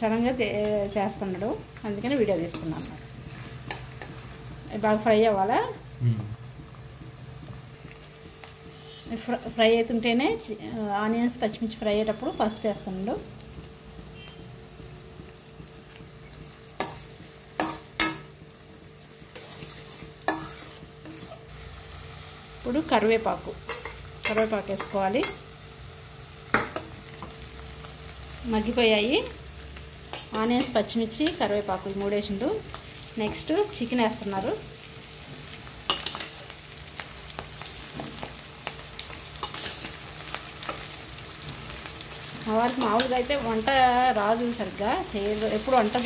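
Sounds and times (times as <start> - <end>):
onions sizzling in oil: 0.0 - 46.0
spoon scraping pan: 2.4 - 4.3, 19.2 - 21.5, 35.8 - 36.6, 39.2 - 41.7
metal spoon knocking on pan: 17.6 - 18.3.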